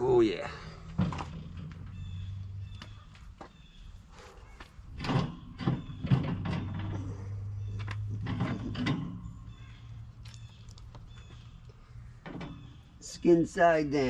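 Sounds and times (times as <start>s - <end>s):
wire racks rattling and scraping: 0.7s - 13.9s
metal knocks and clanks: 0.9s - 3.5s, 4.7s - 9.7s, 12.2s - 12.9s.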